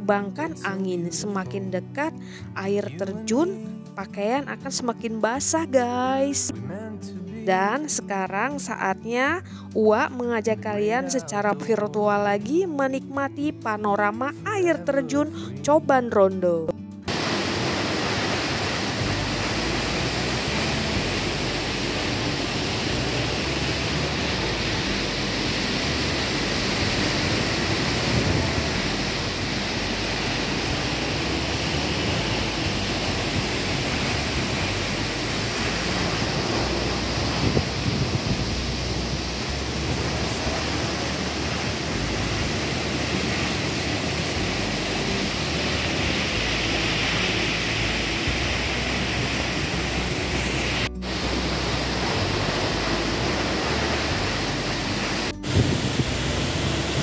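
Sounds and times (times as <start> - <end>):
waterfall rushing: 17.1 - 57.0.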